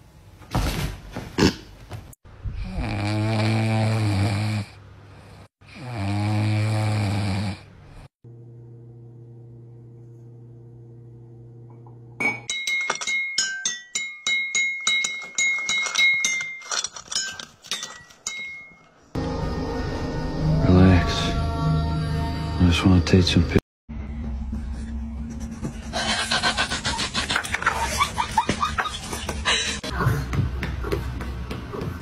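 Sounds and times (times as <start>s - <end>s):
dog snoring: 2.6s - 8.1s.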